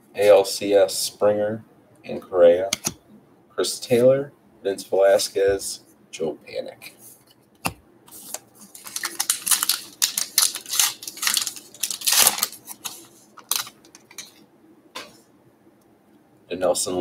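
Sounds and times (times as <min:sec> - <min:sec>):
trading cards rustling and flicking: 0:07.2 - 0:14.4.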